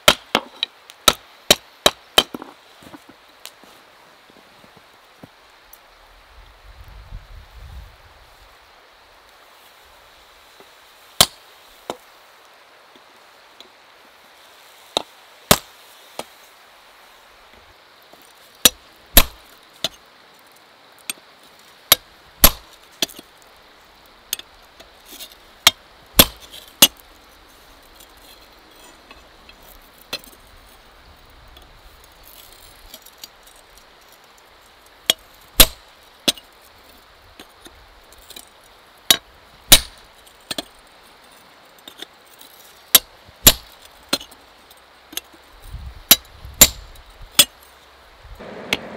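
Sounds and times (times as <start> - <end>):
hammer striking hot steel on anvil: 21.9 - 22.6, 35.1 - 36.4, 39.1 - 40.0, 43.0 - 44.2, 48.4 - 48.9.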